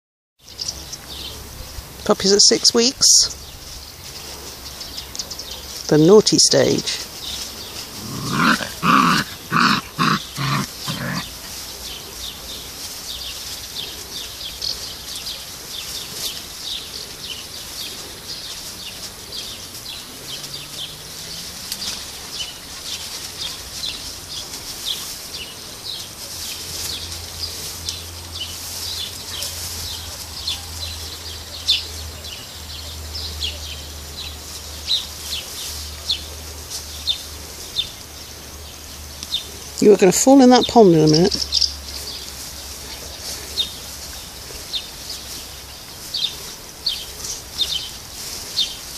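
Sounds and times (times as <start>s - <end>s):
puppies grunting: 6.9s - 12.7s.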